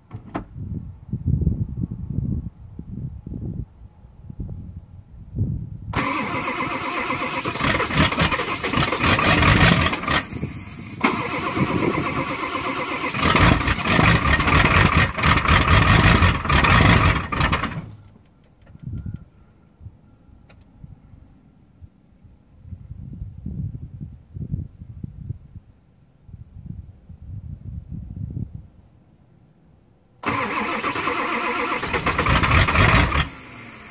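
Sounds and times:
diesel engine cranking: 6.0s - 18.9s, 30.2s - 33.9s.

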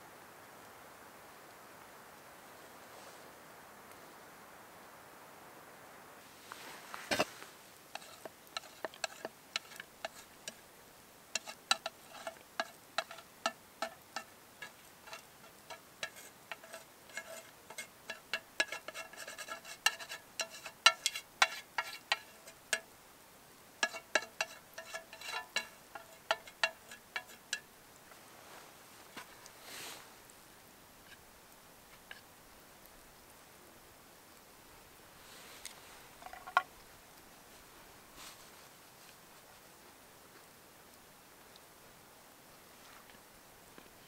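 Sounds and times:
utensil scraping metal frying pan: 7.0s - 10.6s, 11.4s - 22.9s, 23.8s - 27.7s, 32.0s - 32.3s.

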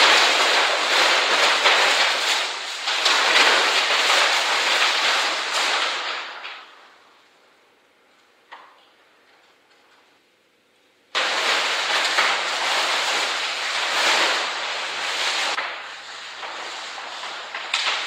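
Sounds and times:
paper crumpling and rustling: 0.0s - 6.9s, 11.2s - 18.0s.

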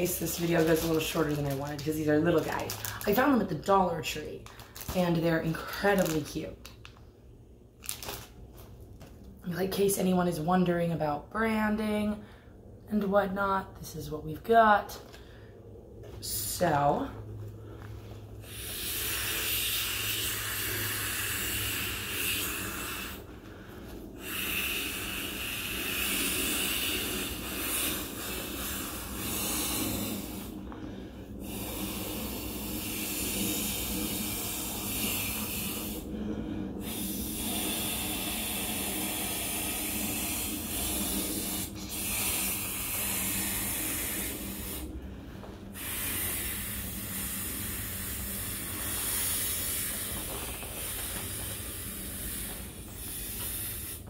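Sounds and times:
person blowing into inflatable: 18.4s - 30.6s, 31.4s - 45.0s, 45.7s - 54.0s.

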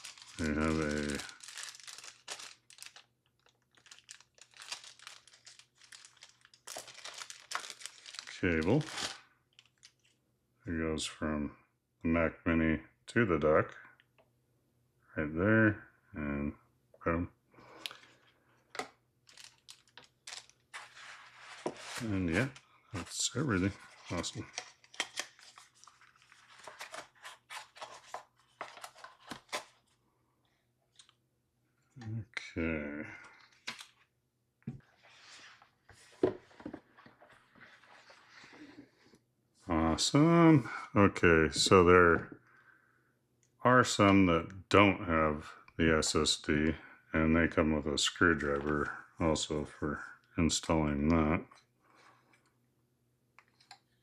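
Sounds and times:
plastic bag crinkling: 0.0s - 10.1s, 19.2s - 29.7s.

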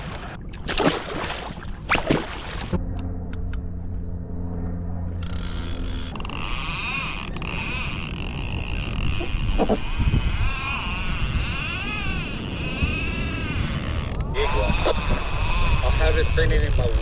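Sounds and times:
water noise: 0.0s - 3.8s, 5.1s - 17.0s
wind: 0.0s - 17.0s
fishing reel drag whining: 5.2s - 17.0s.

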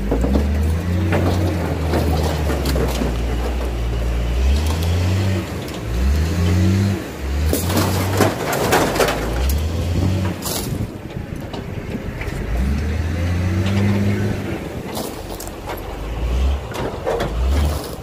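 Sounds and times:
loader diesel engine revving: 0.0s - 18.0s
metal scraping and crunching: 0.0s - 18.0s.

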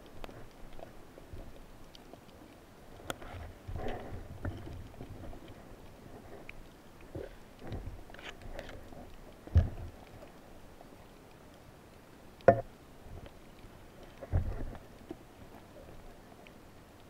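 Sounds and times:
faint steady hiss: 0.0s - 17.0s
muffled underwater clicks: 0.0s - 17.0s
sharp knocks underwater: 9.4s - 10.0s, 12.4s - 12.7s, 14.2s - 14.8s.

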